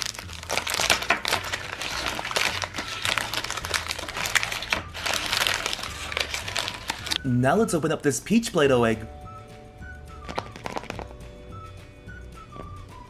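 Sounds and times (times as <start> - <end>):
plastic wrappers crinkling: 0.0 - 7.2, 10.2 - 11.1.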